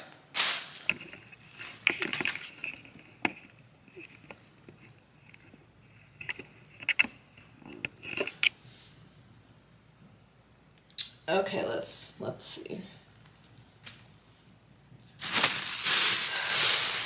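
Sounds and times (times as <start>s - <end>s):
soft handling clicks and rustles: 0.8s - 8.9s, 13.1s - 15.6s.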